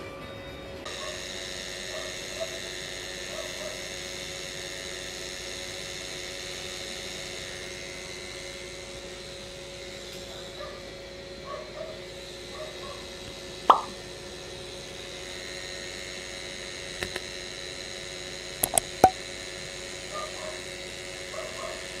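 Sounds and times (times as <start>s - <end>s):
short pop: 13.7s - 14.0s
sharp clicks: 17.0s - 17.3s, 18.6s - 19.2s.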